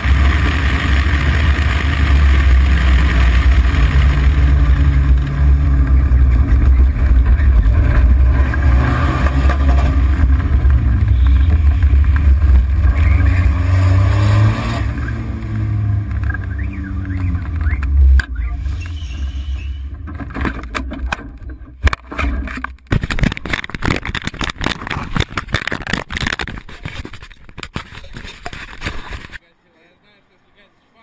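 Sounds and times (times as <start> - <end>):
car engine accelerating: 0.0 - 22.7
road noise: 0.0 - 31.0
wind noise: 2.8 - 29.4.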